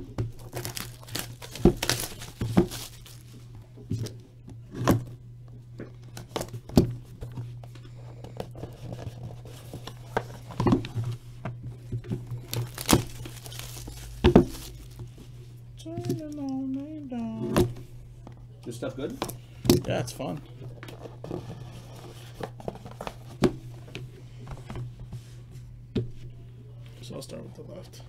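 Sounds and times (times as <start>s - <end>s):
steady low hum: 0.0s - 28.0s
cardboard and wrapper tearing: 0.4s - 3.4s, 12.3s - 15.1s.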